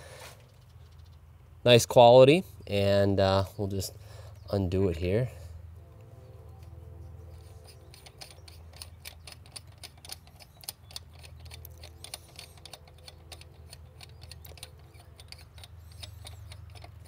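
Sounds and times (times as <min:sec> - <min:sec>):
metal bowl unscrewing clicks: 0:07.4 - 0:17.0.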